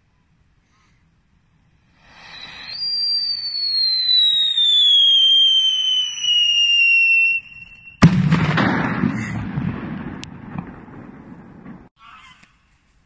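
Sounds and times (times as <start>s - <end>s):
firework crackling: 1.8s - 12.0s
firework whistle falling in pitch: 2.1s - 8.2s
firework bang: 2.3s - 11.9s.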